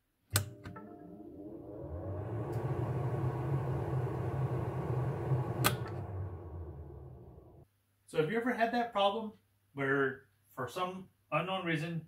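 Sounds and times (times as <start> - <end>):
switch clicks: 0.3 - 0.8
extractor fan motor whining: 0.4 - 7.6.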